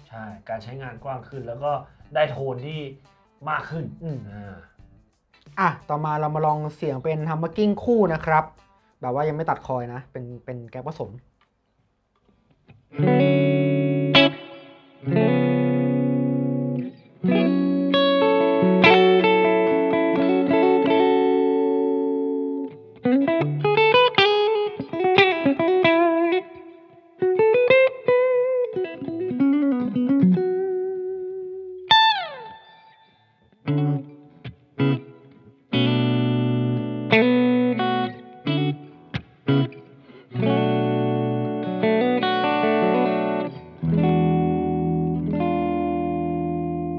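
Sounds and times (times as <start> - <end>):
clean electric guitar: 12.6 - 46.9.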